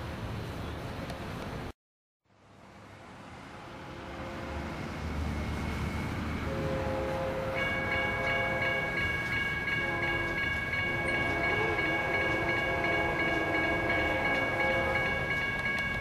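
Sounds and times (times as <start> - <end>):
distant train horn: 3.4 - 15.6
crossing warning bell ringing: 5.8 - 16.0.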